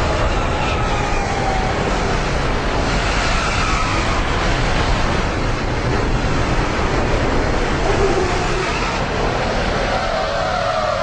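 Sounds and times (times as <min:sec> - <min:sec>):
diesel truck engines racing: 0:00.0 - 0:11.0.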